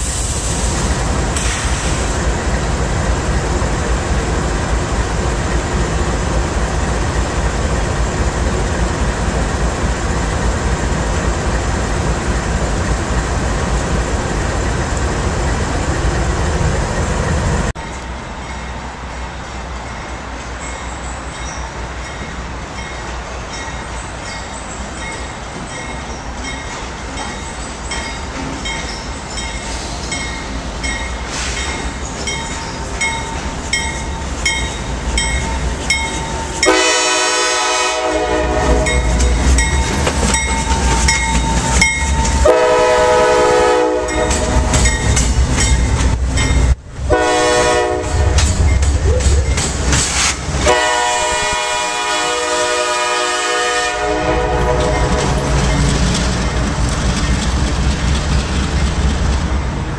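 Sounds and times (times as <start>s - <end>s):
train air horn blasts: 36.6s - 39.2s, 42.4s - 44.7s, 47.1s - 48.5s, 50.2s - 55.6s.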